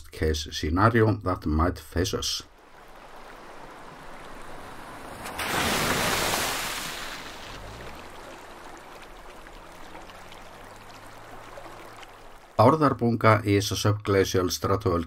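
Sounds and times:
water splashing and rushing: 2.5 - 12.9.

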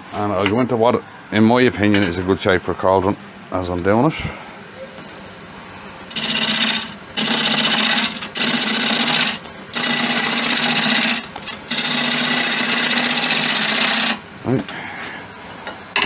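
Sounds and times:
gouge cutting wood on lathe: 6.1 - 14.2
wood lathe running: 6.1 - 14.2.

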